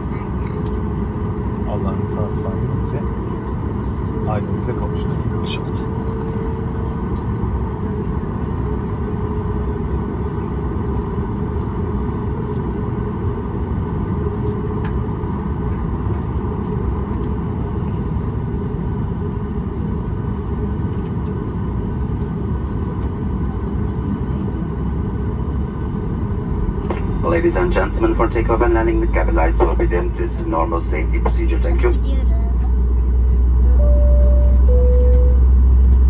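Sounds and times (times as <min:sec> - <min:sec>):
aircraft engines idling: 0:00.0 - 0:36.0.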